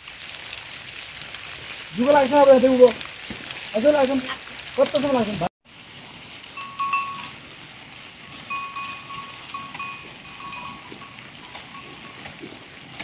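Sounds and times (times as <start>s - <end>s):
animal bell clanking: 6.6s - 7.4s, 8.3s - 13.0s.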